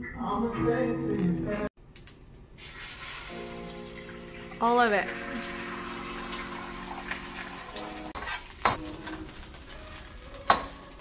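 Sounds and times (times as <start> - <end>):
egg sizzling: 1.9 - 11.0
metal spatula scraping wok: 8.0 - 11.0.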